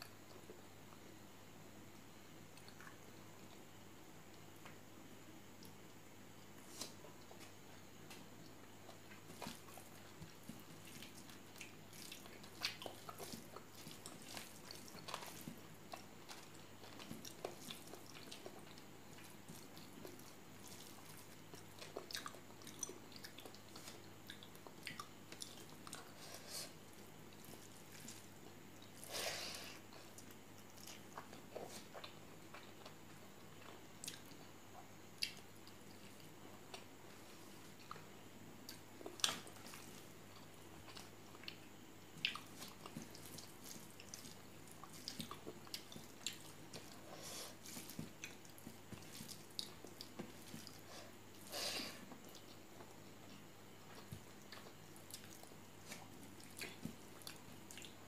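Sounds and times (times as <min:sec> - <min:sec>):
wet chewing and lip smacks: 0:08.1 - 0:26.3, 0:29.9 - 0:37.0, 0:37.7 - 0:51.5, 0:52.1 - 0:58.0
hand mixing rice squishing: 0:08.8 - 0:34.4, 0:38.7 - 0:53.0, 0:53.8 - 0:58.0.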